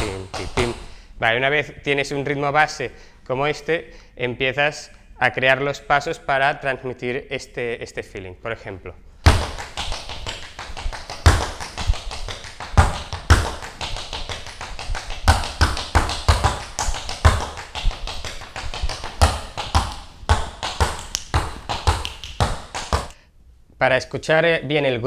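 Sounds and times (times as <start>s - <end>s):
tap shoes on wooden floor: 0.0s - 1.0s, 9.3s - 23.2s.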